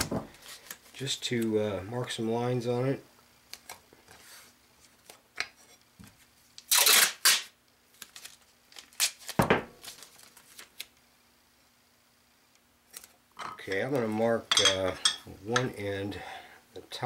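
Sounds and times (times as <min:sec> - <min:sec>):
tape handling rustles and clicks: 0:00.0 - 0:01.5, 0:06.6 - 0:11.0, 0:12.9 - 0:13.2
masking tape ripping off roll: 0:06.6 - 0:10.9.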